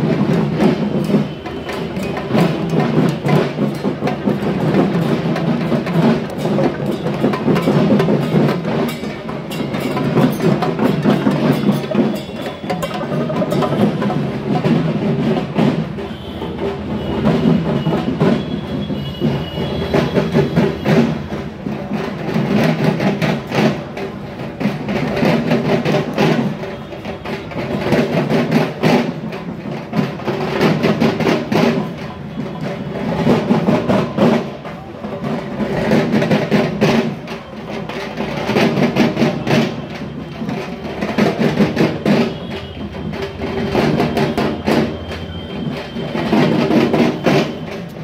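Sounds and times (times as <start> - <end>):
hand drums rhythmic beat: 0.0 - 48.0.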